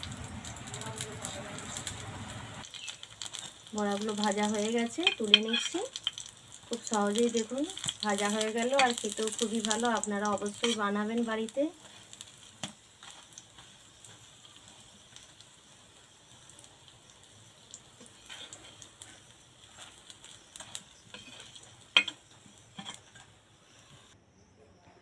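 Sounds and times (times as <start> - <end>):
fritters sizzling in oil: 0.0 - 24.2
metal spatula scraping pan: 5.0 - 5.8, 10.6 - 10.9, 18.0 - 23.3.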